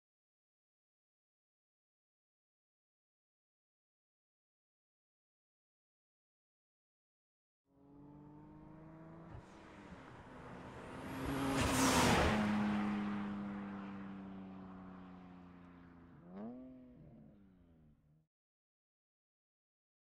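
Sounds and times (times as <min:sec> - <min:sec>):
car engine driving past: 0:07.8 - 0:18.0.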